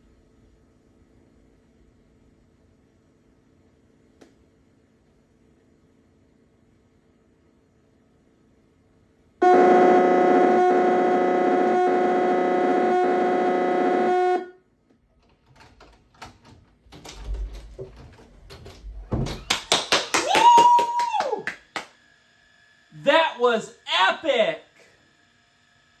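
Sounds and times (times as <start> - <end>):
loud droning tone from tv speaker: 9.4 - 14.7, 20.8 - 26.0.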